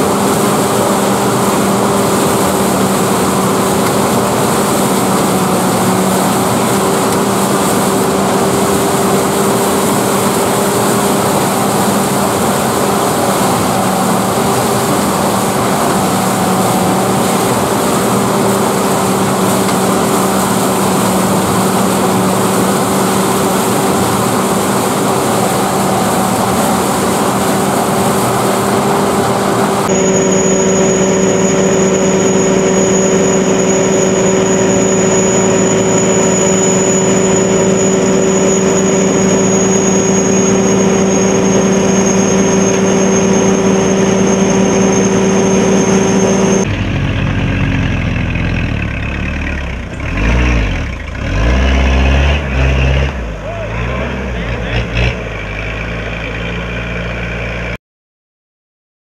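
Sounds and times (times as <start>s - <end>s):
auger high whine: 0.0s - 57.8s
combine harvester engine running: 0.0s - 57.8s.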